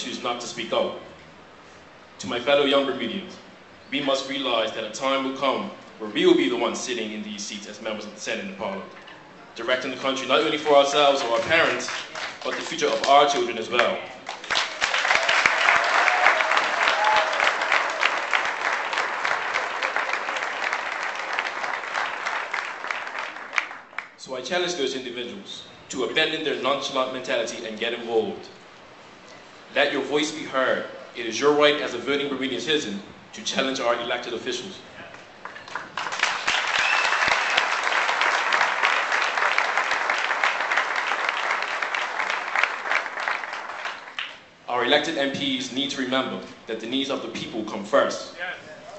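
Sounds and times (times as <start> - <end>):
crowd applauding: 10.4 - 24.2, 35.4 - 44.4.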